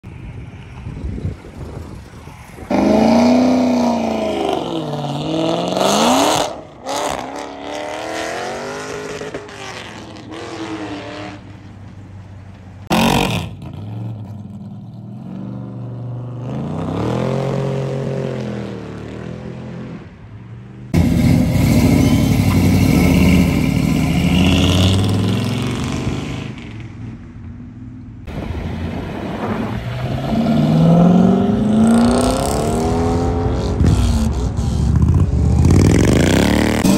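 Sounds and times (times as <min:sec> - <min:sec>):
cars accelerating past: 0:00.2 - 0:11.6, 0:28.2 - 0:36.9.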